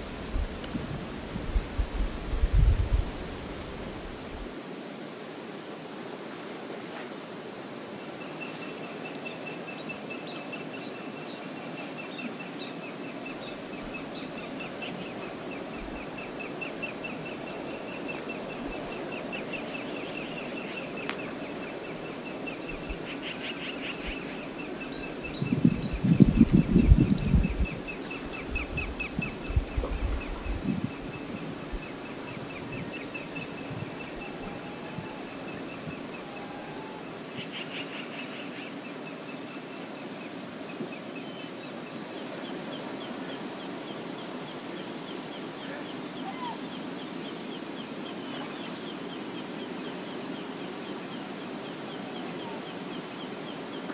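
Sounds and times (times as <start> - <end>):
river water rushing: 3.0 - 25.4, 27.7 - 53.9.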